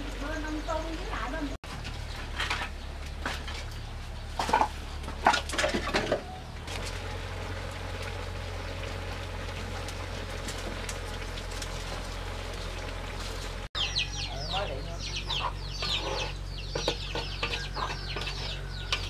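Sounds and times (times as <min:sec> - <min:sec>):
steady low rumble: 0:06.5 - 0:13.8
chicken clucking: 0:13.8 - 0:19.0.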